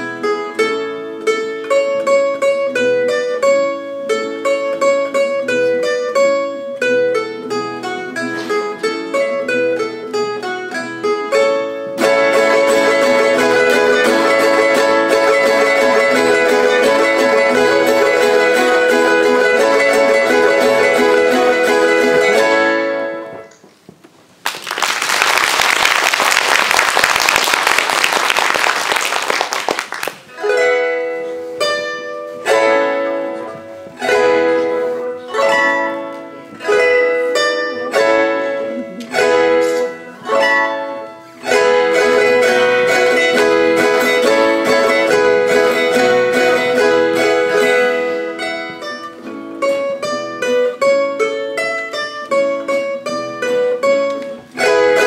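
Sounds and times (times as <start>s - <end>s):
plucked folk tune: 0.0s - 55.0s
audience applause: 24.4s - 30.3s.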